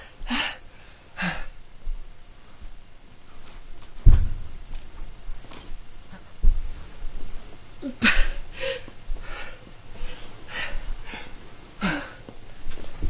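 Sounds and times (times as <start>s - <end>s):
man gasping breaths: 0.0s - 1.6s, 8.0s - 12.3s.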